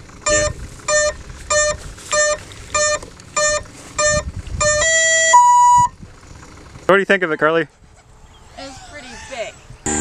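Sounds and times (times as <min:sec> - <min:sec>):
short electronic beeps: 0:00.3 - 0:05.9.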